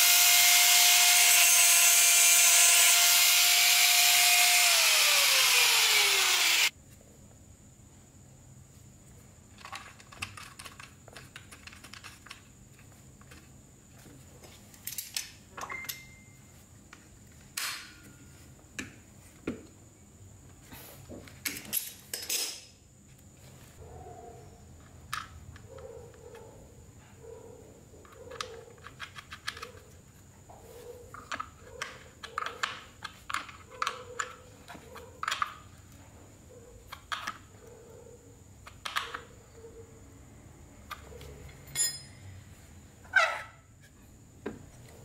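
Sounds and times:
angle grinder winding down: 0:00.0 - 0:06.7.

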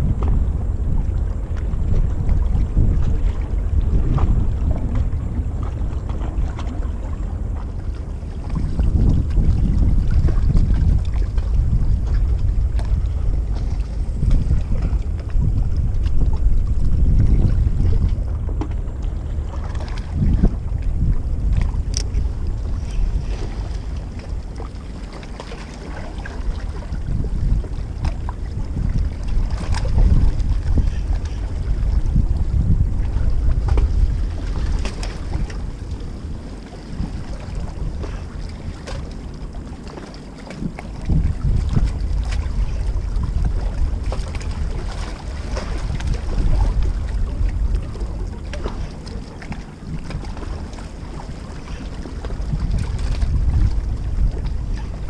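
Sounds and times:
wind buffeting microphone: 0:00.0 - 0:55.0
small clicks and ticks: 0:21.9 - 0:22.1.

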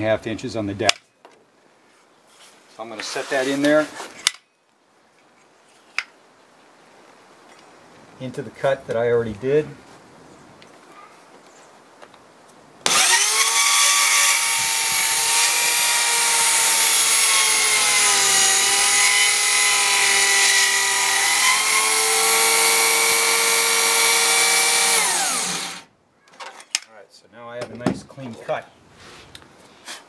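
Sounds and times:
circular saw cutting wood: 0:12.9 - 0:25.9.

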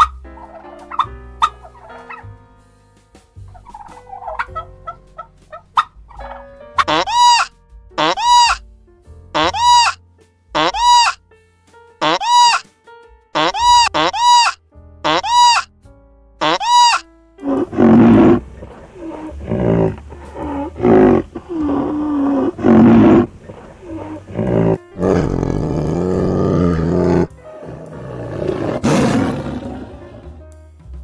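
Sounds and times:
large animal calling: 0:06.8 - 0:08.6, 0:09.4 - 0:10.0, 0:10.6 - 0:11.2, 0:12.0 - 0:12.6, 0:13.4 - 0:15.7, 0:16.4 - 0:30.4.

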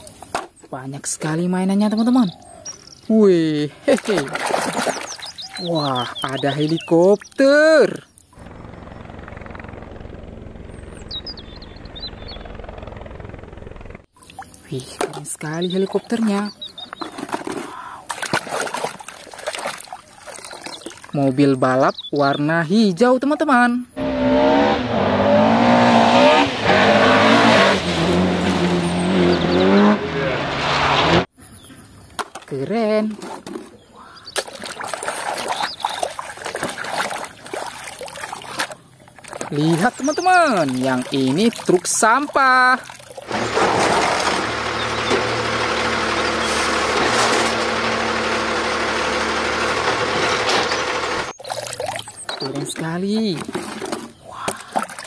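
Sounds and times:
rally car engine revving: 0:24.0 - 0:31.3, 0:43.3 - 0:51.3
hydraulic arm lifting cart: 0:43.3 - 0:51.3.

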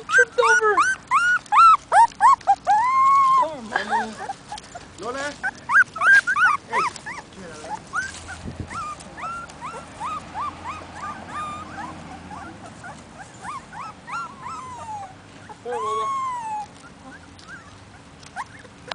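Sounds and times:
puppies whimpering: 0:00.0 - 0:18.9
puppy falling cry: 0:00.2 - 0:04.6, 0:13.5 - 0:17.2.

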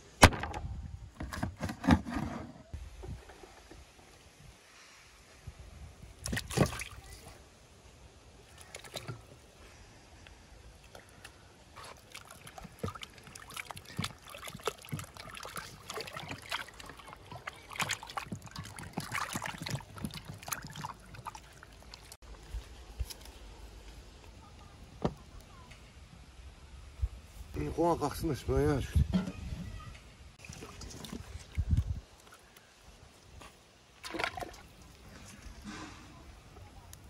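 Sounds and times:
water splashing and sloshing: 0:02.8 - 0:07.6, 0:08.2 - 0:23.3, 0:29.0 - 0:37.0.

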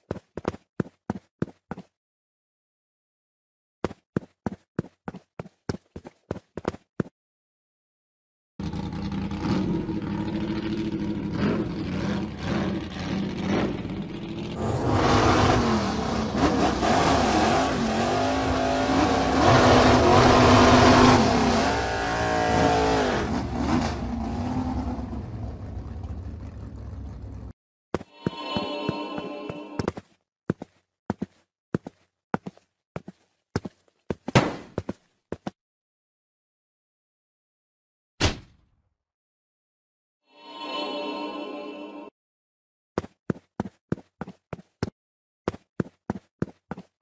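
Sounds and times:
car engine revving: 0:08.6 - 0:27.5.

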